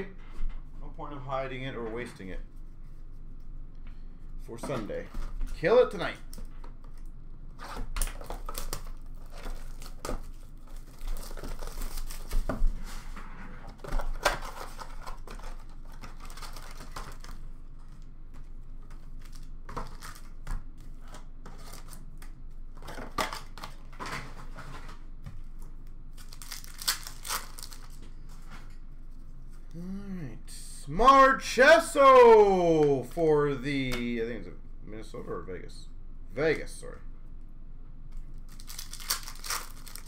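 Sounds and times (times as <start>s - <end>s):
wrappers crinkling: 8.2s - 12.5s, 14.0s - 17.9s, 26.1s - 28.0s, 38.3s - 40.0s.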